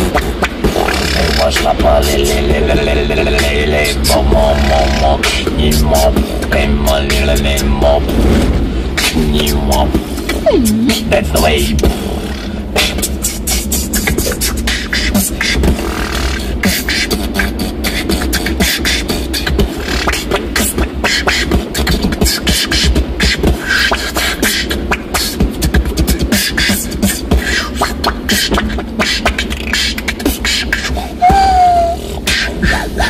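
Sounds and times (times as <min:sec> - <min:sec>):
beatboxing: 0:00.0 - 0:33.0
falling vocal tone: 0:09.1 - 0:12.6, 0:31.2 - 0:32.1.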